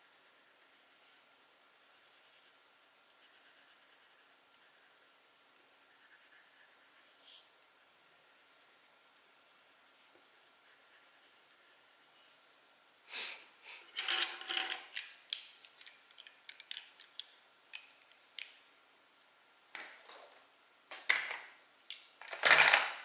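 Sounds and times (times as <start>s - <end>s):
drawing tools clicking and tapping: 13.9s - 18.6s.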